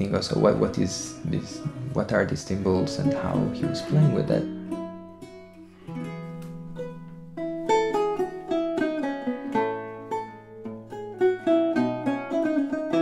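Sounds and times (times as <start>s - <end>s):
lute duet: 0.0s - 13.0s.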